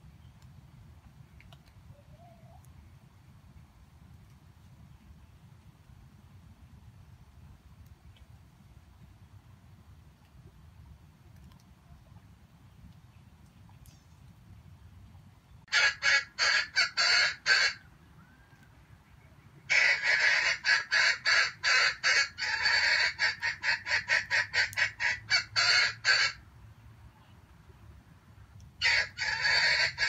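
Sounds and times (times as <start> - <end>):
junglefowl clucking: 15.7 - 17.8, 19.6 - 26.4, 28.8 - 30.0.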